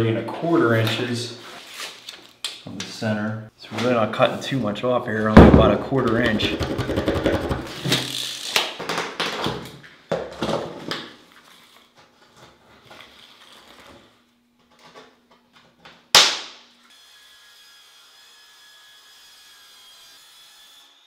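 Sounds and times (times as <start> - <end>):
handling knocks and thuds: 5.4 - 7.7.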